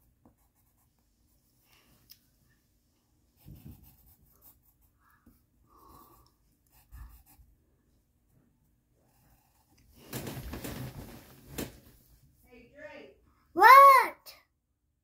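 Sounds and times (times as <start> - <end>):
pen scratching on paper: 0.0 - 1.4, 3.4 - 5.0, 6.7 - 7.5
paper rustles: 10.0 - 12.0.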